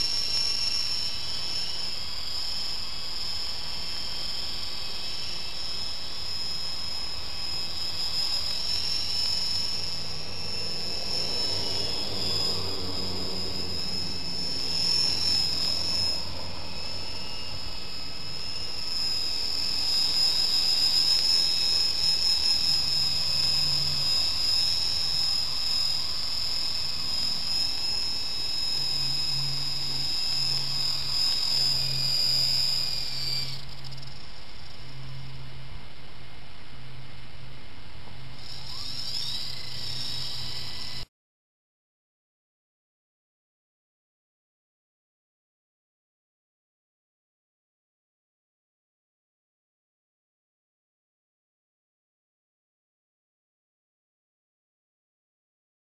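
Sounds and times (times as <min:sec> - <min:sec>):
low rotor hum: 0:00.0 - 0:41.1
rc helicopter motor whine: 0:00.0 - 0:41.1.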